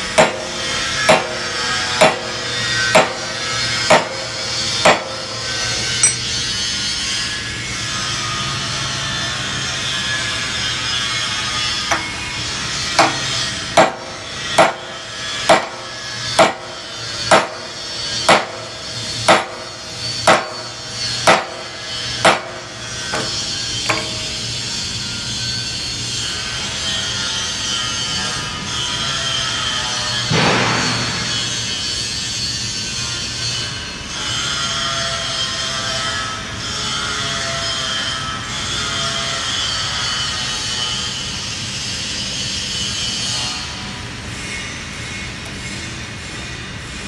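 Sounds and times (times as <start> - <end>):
hammer striking steel rod: 0.2 - 1.4, 2.0 - 3.3, 3.9 - 5.3, 6.0 - 6.3, 11.9 - 12.2, 13.0 - 14.9, 15.5 - 17.6, 18.3 - 18.7, 19.3 - 19.7, 20.3 - 24.3.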